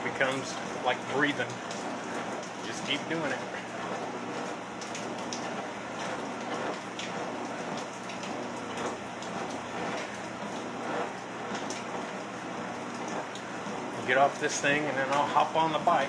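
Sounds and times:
treadmill running: 0.0s - 16.0s.

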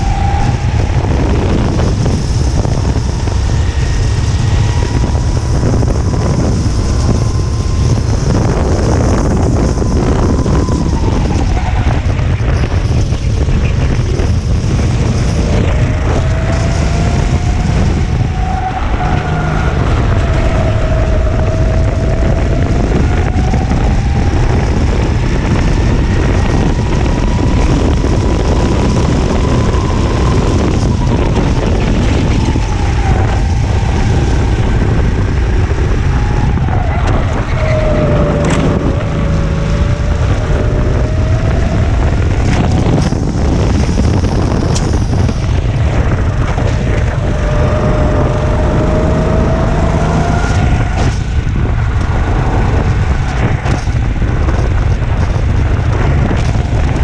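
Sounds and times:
kart engine running hard: 0.0s - 57.0s
wind buffeting microphone: 0.0s - 57.0s.

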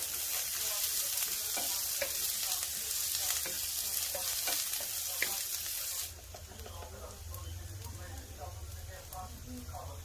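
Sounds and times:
vegetables sizzling in oil: 0.0s - 10.0s
wooden spatula tapping pan: 1.3s - 2.4s.

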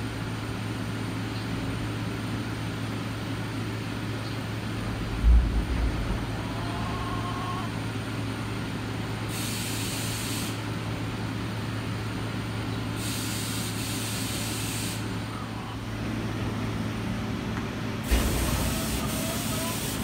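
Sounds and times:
constant low hum: 0.0s - 13.0s, 13.6s - 19.9s
short thump: 5.0s - 6.3s.

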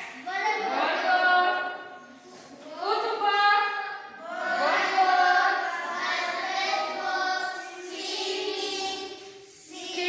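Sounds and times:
children chanting in unison: 2.9s - 10.0s.

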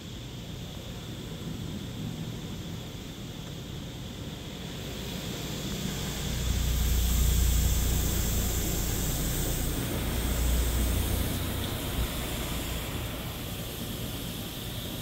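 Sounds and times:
water jets spraying car: 4.6s - 15.0s
low rumble: 5.9s - 13.4s.

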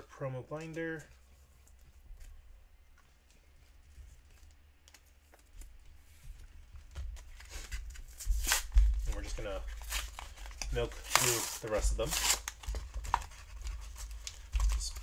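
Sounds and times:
plastic blister pack crinkling: 6.9s - 15.0s.

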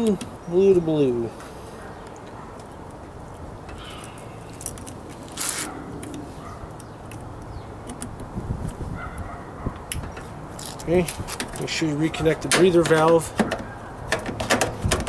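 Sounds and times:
short rustle: 3.8s - 6.6s.

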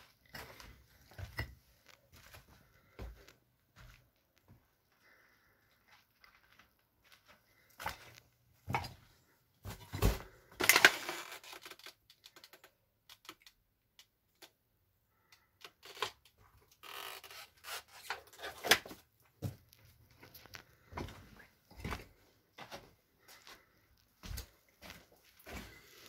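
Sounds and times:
footsteps crunching on gritty floor: 19.4s - 26.0s.

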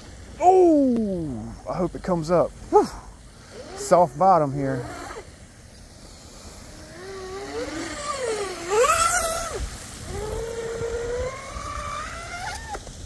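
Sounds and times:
electric motor whining: 3.4s - 5.4s, 6.0s - 13.0s.

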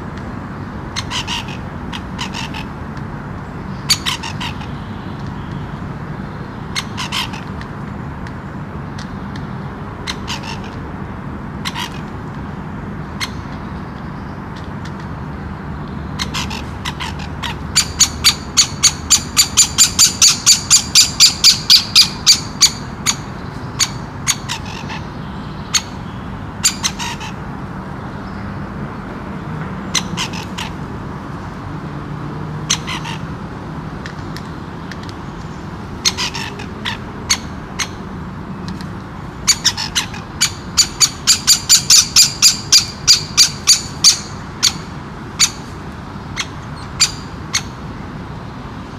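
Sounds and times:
woodpecker squawk-like calls: 1.0s - 2.7s, 6.7s - 7.5s, 16.2s - 26.0s, 26.6s - 27.4s, 36.0s - 38.0s, 39.4s - 45.7s.

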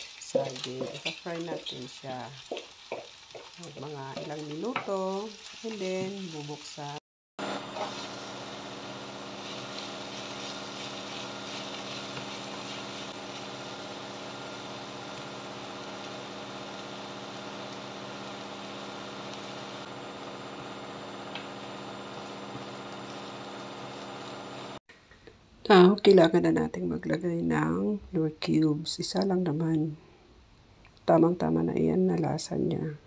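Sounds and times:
food sizzling in a pan: 0.0s - 24.8s
kitchen appliance hum: 7.4s - 24.8s.

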